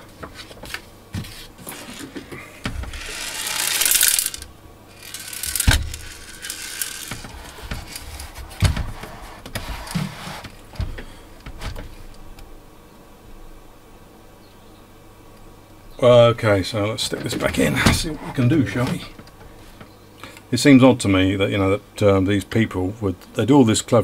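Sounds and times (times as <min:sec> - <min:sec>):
metal chassis sliding: 0:02.9 - 0:10.4.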